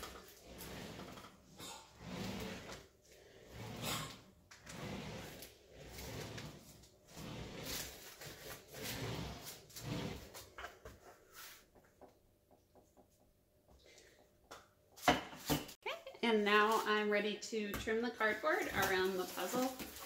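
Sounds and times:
rolling pin rolling over cardboard: 0.0 - 11.9.

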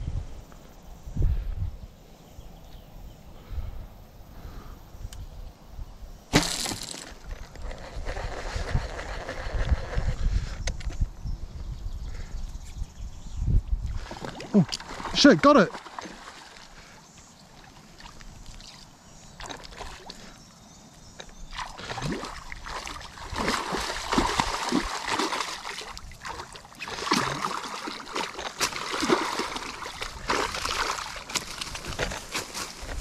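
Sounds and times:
fish thrashing and splashing water: 14.0 - 16.7, 21.5 - 32.8.

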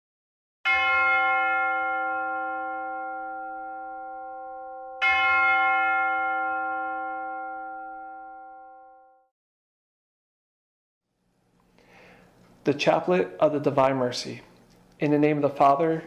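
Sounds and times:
bell ringing: 0.7 - 9.3.

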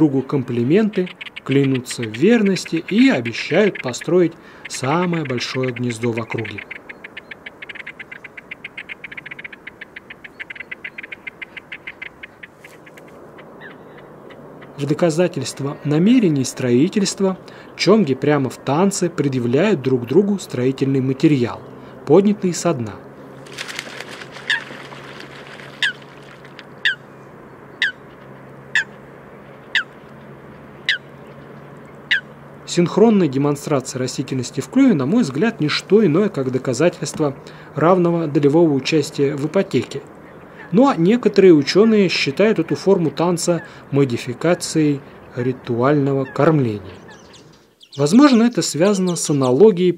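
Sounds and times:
grebes calling: 0.0 - 49.9
grebes ticking rattle call: 0.2 - 14.8.

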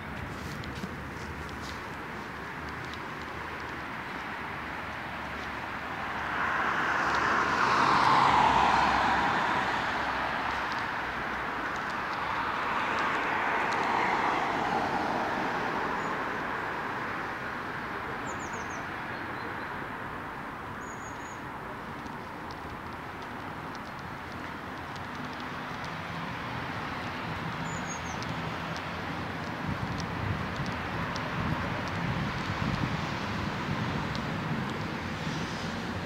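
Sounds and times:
vehicle passing: 4.3 - 11.4.

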